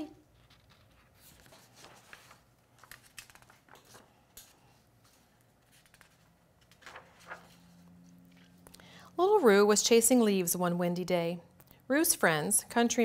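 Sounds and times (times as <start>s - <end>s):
paper rustling: 0.3s - 8.6s.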